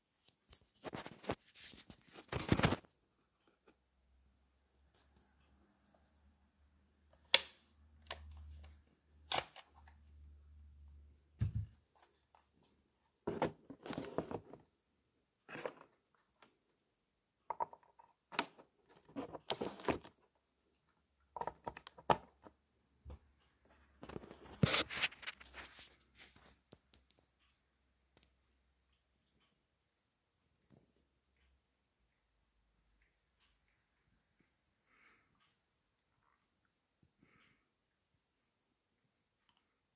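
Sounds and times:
hard plastic clicks and rustles: 0.2s - 3.8s, 11.4s - 14.7s, 17.4s - 27.5s.

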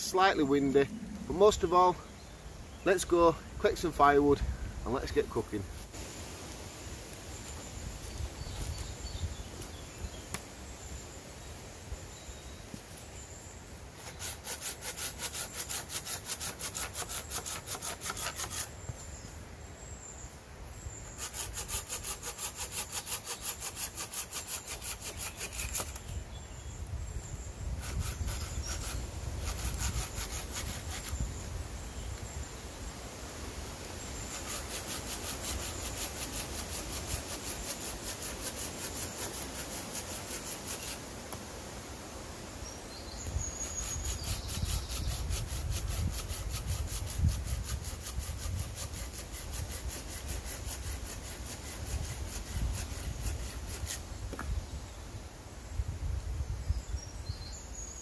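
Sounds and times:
hand saw cutting branch: 14.0s - 18.7s, 21.1s - 26.2s, 27.8s - 31.2s, 34.2s - 41.0s, 43.6s - 54.0s.

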